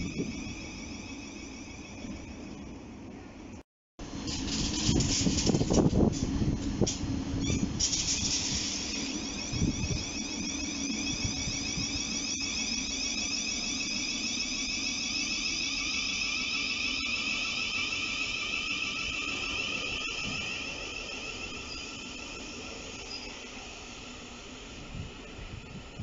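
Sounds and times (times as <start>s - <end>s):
electric train whine: 0.0s - 26.0s.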